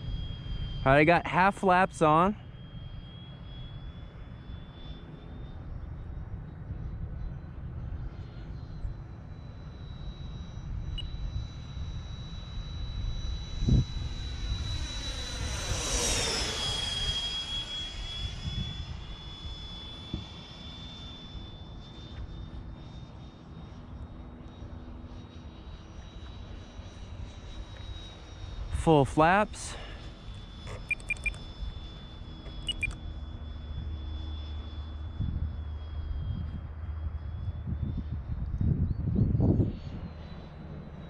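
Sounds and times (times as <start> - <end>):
electric ducted fan whine: 0.0 - 41.0
wind rumble on microphone: 10.7 - 15.5, 18.2 - 20.4, 35.0 - 41.0.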